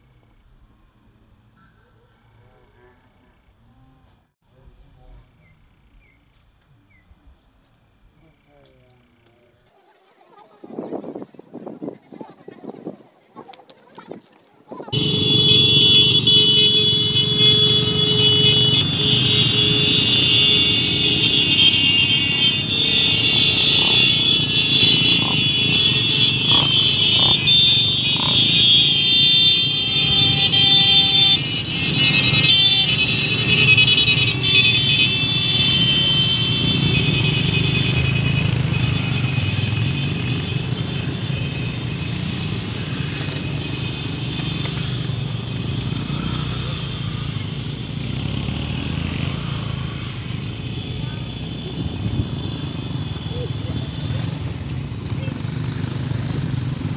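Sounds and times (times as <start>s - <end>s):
trail motorcycles riding past: 9.1s - 56.9s
loud high steady tones: 15.0s - 42.1s.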